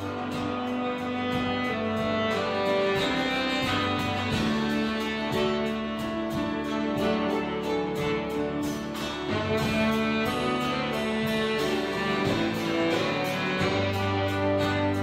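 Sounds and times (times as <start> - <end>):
bass guitar: 0.0 - 15.0
piano: 0.0 - 15.0
saxophone: 0.0 - 15.0
strummed acoustic guitar: 0.0 - 15.0
violin: 0.0 - 15.0.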